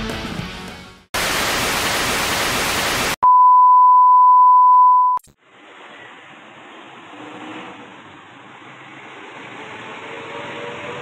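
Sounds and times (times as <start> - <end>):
television static hiss: 1.2 - 3.2
steady test tone beep: 3.2 - 5.2.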